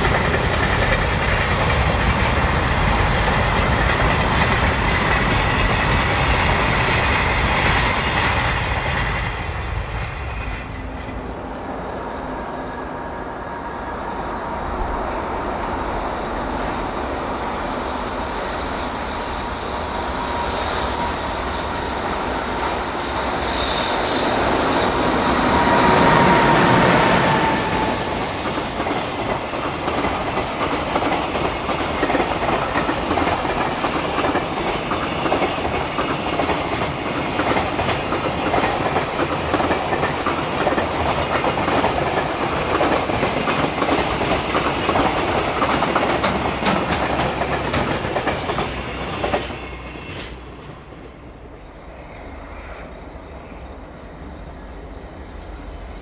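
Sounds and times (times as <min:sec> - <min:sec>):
train wheels clacking over rail joints: 0:00.0 - 0:11.2, 0:27.3 - 0:51.1
electric locomotive passing: 0:00.0 - 0:56.0.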